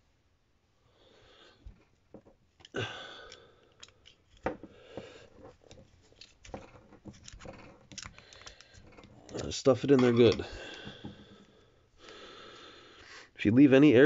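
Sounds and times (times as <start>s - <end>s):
metal rod clicking and scraping: 2.6s - 4.5s, 5.4s - 10.9s
wire wool rustling: 5.2s - 10.5s.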